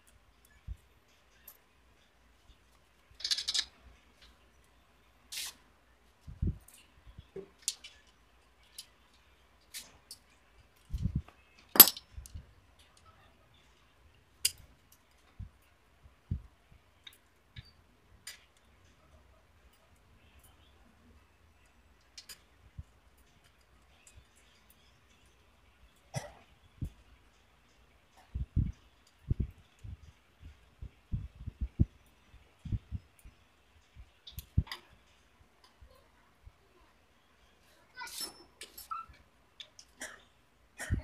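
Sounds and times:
tools and metal parts clinking: 3.2 - 4.3, 7.6 - 12.4, 38.0 - 39.0.

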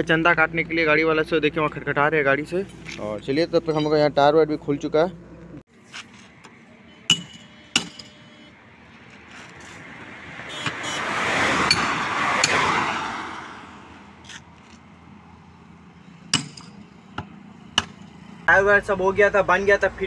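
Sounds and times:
metal tools clinking on wheel rim: 2.6 - 4.1, 7.1 - 8.3
passing vehicle: 8.6 - 20.0.

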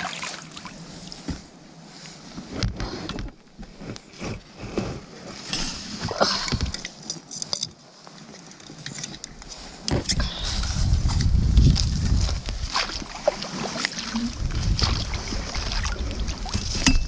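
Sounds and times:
water rumbling against kayak hull: 9.9 - 17.0.

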